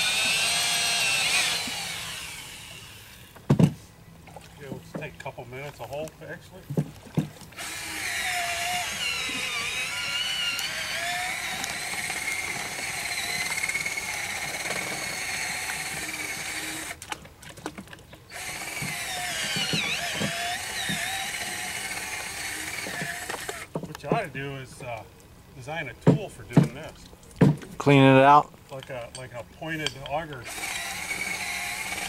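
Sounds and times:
cordless drill whining: 0.0s - 3.4s, 7.6s - 17.0s, 18.3s - 23.7s, 30.4s - 32.0s.

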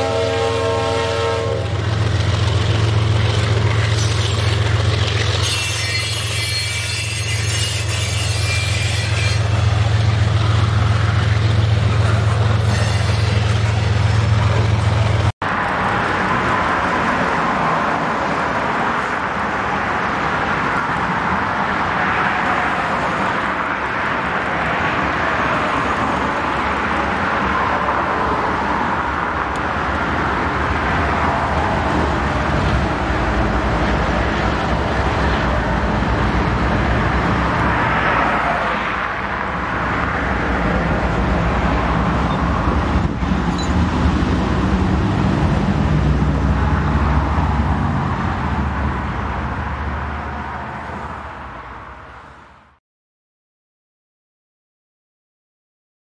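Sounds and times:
locomotive engine drone: 0.0s - 6.4s, 7.8s - 17.2s
steel wheels rumbling on rails: 0.0s - 49.8s.

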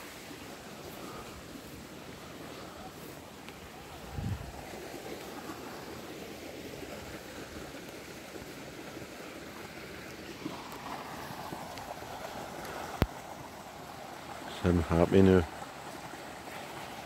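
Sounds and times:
water pouring into a pond: 0.0s - 17.0s
wind on microphone: 3.9s - 4.7s.

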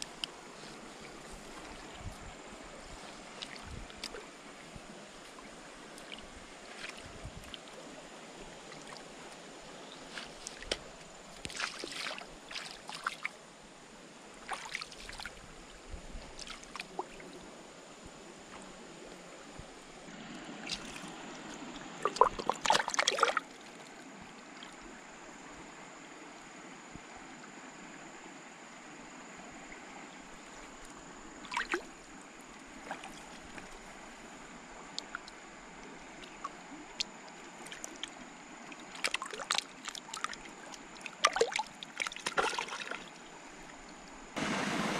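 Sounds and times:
fish splashing in water: 22.0s - 23.5s, 38.8s - 43.1s
water trickling: 30.2s - 44.9s.

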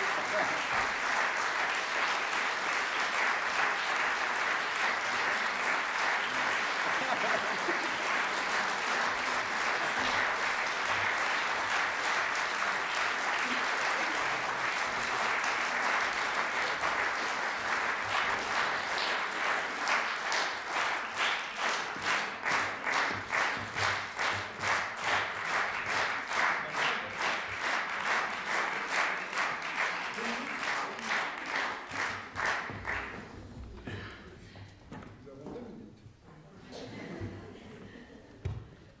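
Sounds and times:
rhythmic unison clapping: 0.0s - 33.4s
audience applauding: 0.0s - 34.0s.

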